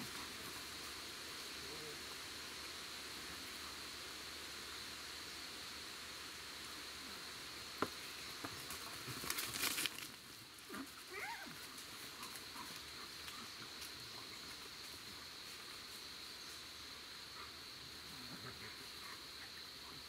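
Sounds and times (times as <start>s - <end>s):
insect drone: 0.0s - 20.0s
paws rustling dry leaves: 8.6s - 16.0s.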